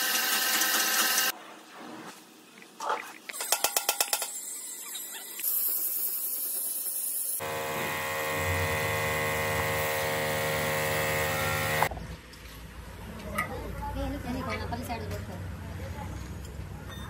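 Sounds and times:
machine motor humming: 7.4s - 11.9s.

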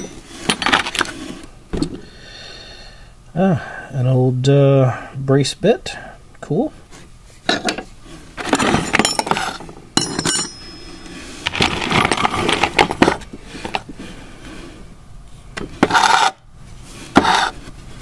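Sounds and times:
metal tools clinking in a toolbox: 0.0s - 1.0s, 8.4s - 13.0s.

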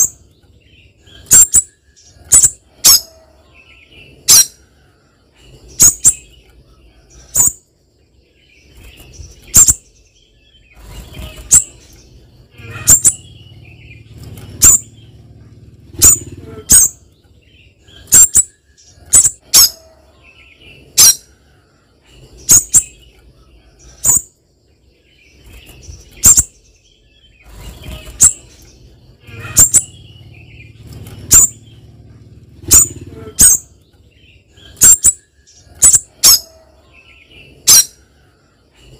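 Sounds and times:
bird giving high sharp calls: 1.1s - 3.3s, 4.2s - 4.6s, 12.5s - 15.2s, 15.9s - 17.1s, 17.8s - 20.1s, 20.9s - 21.3s, 22.4s - 23.0s, 27.4s - 31.8s, 32.6s - 33.8s, 34.5s - 36.7s, 37.6s - 38.0s.

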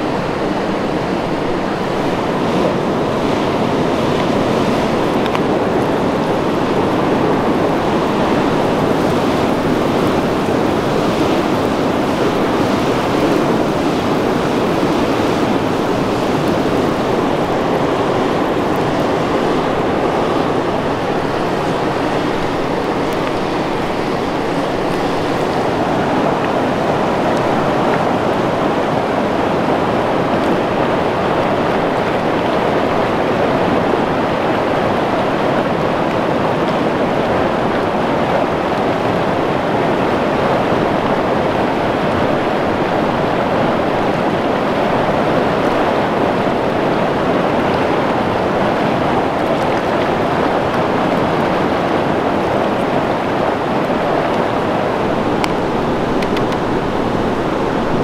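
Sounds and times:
flowing water rushing: 0.0s - 58.0s.

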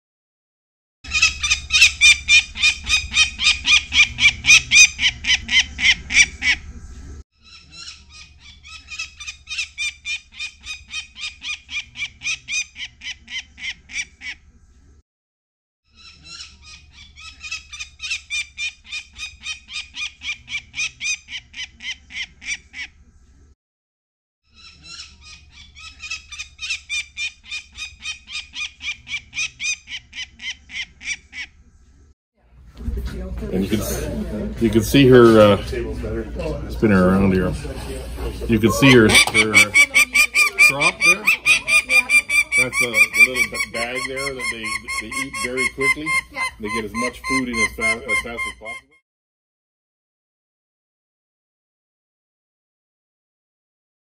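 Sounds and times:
falcon chick calling harshly: 1.1s - 6.6s, 38.8s - 49.0s.

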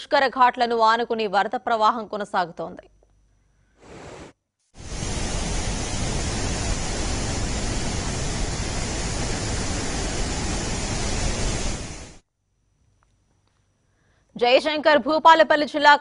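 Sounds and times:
floodwater rushing: 4.8s - 12.2s.

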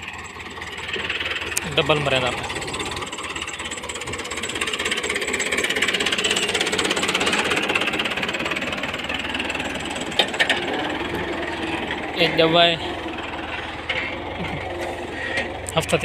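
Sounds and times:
tractor diesel engine running: 0.0s - 16.0s.

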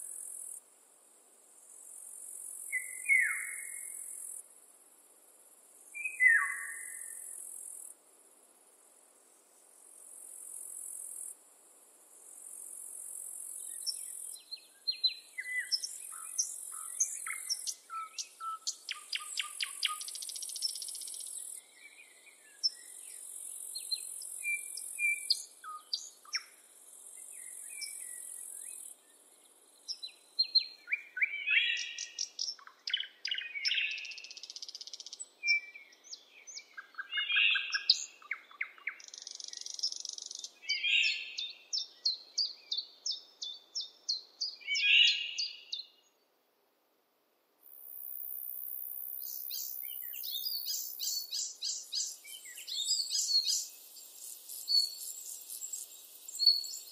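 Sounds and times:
songbirds singing and calling: 2.7s - 4.1s, 6.0s - 7.4s, 13.5s - 46.2s, 48.0s - 56.9s
high insect buzz: 47.6s - 56.9s.

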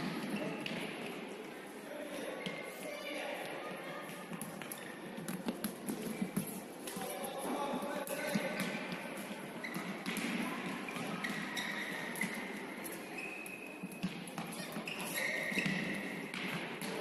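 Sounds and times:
shoes squeaking on court: 8.5s - 16.4s
ball bouncing on hard floor: 9.6s - 12.4s, 15.5s - 17.0s.

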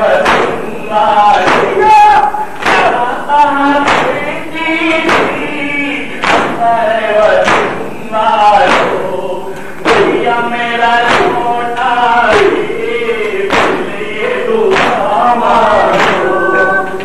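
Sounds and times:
men chanting: 0.0s - 17.0s
hands striking chests: 0.2s - 0.7s, 1.4s - 1.8s, 2.6s - 3.0s, 3.8s - 4.2s, 4.9s - 5.5s, 6.2s - 6.6s, 7.4s - 7.9s, 8.6s - 9.1s, 11.0s - 12.6s, 13.5s - 13.9s, 14.7s - 17.0s.

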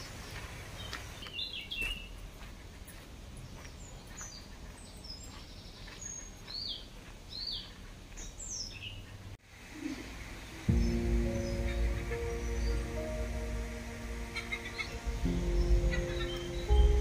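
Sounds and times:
small birds chirping: 0.0s - 17.0s
low background rumble: 10.7s - 17.0s.

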